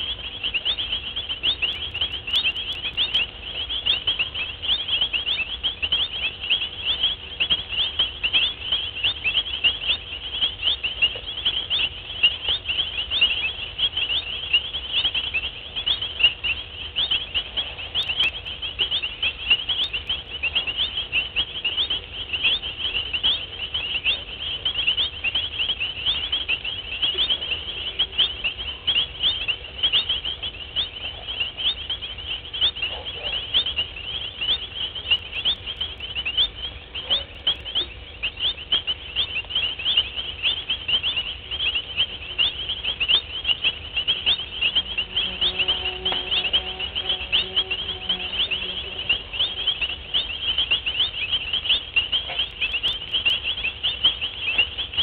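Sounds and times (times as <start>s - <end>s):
high-pitched chirping chorus: 0.0s - 55.0s.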